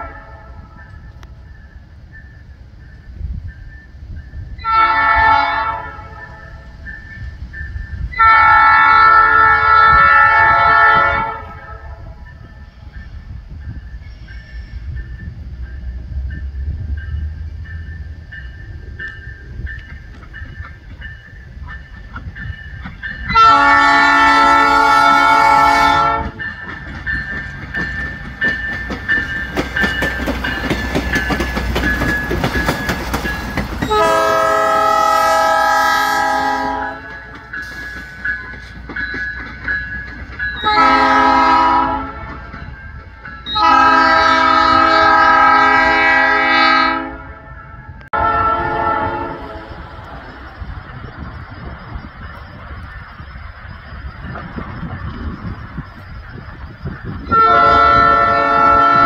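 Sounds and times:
train air horn blasts: 0:00.0 - 0:00.8, 0:04.6 - 0:06.7, 0:08.1 - 0:12.2, 0:23.3 - 0:26.4, 0:33.8 - 0:37.2, 0:40.6 - 0:42.4, 0:43.5 - 0:49.8, 0:57.3 - 0:59.0
railcar engine rumbling: 0:00.0 - 0:59.0
wheels clattering over rails: 0:24.5 - 0:34.7, 0:36.9 - 0:43.6.

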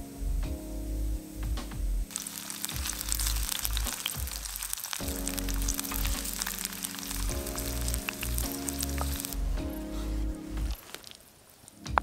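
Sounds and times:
background music low notes: 0:00.0 - 0:11.0, 0:11.6 - 0:12.0
onions sizzling in oil: 0:02.1 - 0:09.4
wooden spoon stirring: 0:02.1 - 0:09.4, 0:10.6 - 0:11.3.

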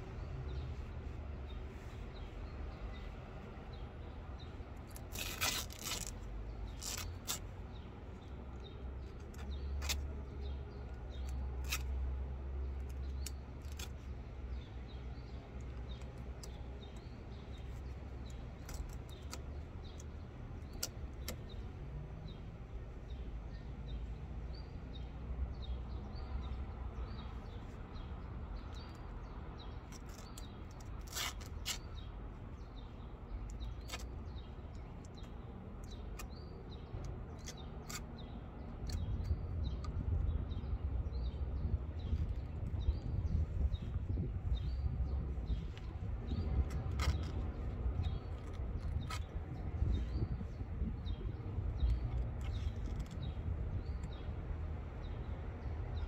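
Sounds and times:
small birds chirping: 0:00.0 - 0:56.0
fabric snipping and tearing: 0:04.9 - 0:07.5.

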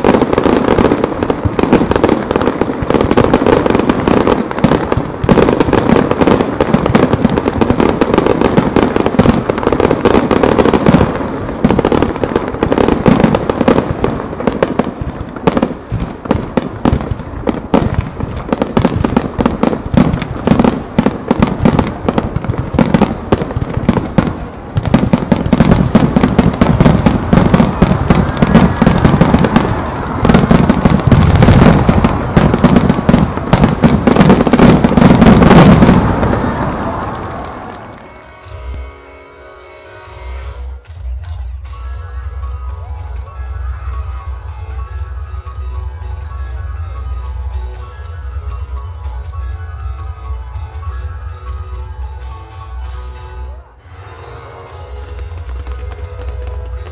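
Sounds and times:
fireworks bursting and crackling: 0:00.0 - 0:38.9, 0:54.7 - 0:56.9
low fireworks booms: 0:00.0 - 0:38.9, 0:55.0 - 0:56.9.

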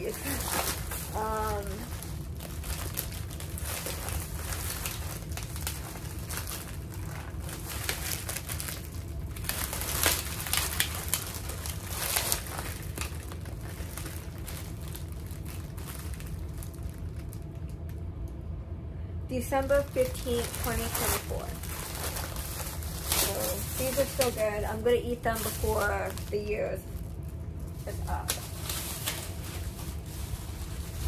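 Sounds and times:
plastic wrapper crinkling: 0:00.0 - 0:18.4, 0:19.4 - 0:31.0.

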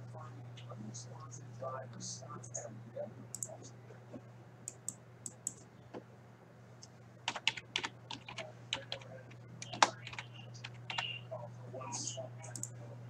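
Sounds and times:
keyboard typing: 0:03.3 - 0:03.6, 0:04.7 - 0:05.7, 0:07.3 - 0:11.2, 0:12.4 - 0:12.7.

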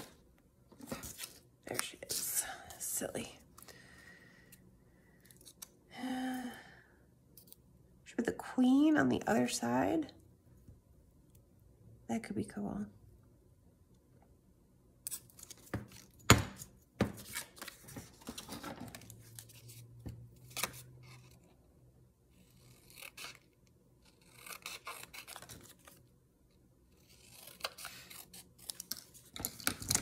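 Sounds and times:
scissors snipping paper: 0:22.4 - 0:26.0, 0:27.0 - 0:30.0.

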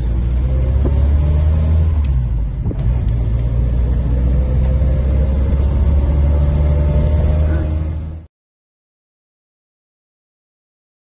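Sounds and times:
car engine drone from cabin: 0:00.0 - 0:08.3.

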